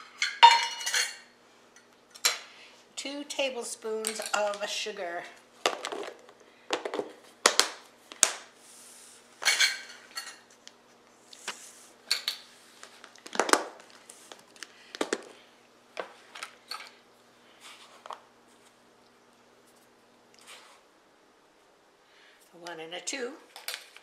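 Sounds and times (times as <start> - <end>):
utensils clinking and knocking: 0.0 - 1.2.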